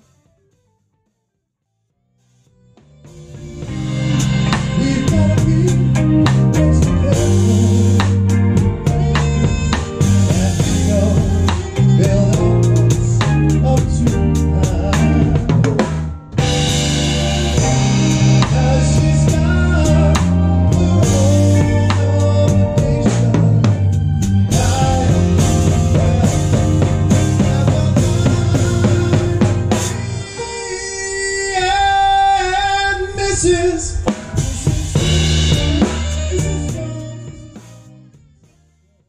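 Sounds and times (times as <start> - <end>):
live band music: 2.2 - 39.0
drum kit: 2.3 - 39.0.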